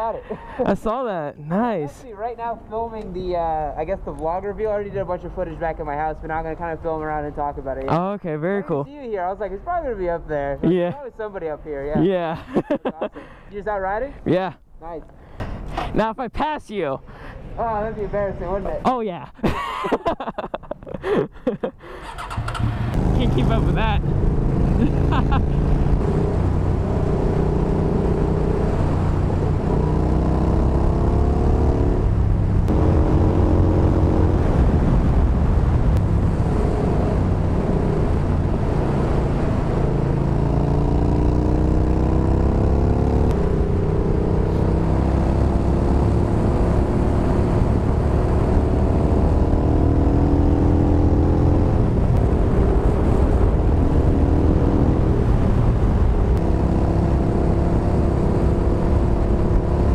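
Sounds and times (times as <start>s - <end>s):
motorcycle engine revving: 22.0s - 59.9s
wind rumble: 22.1s - 59.9s.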